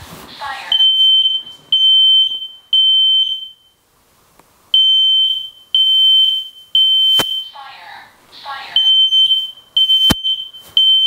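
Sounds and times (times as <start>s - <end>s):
smoke alarm beeping: 0.7s - 3.8s, 4.7s - 7.6s, 8.8s - 11.0s.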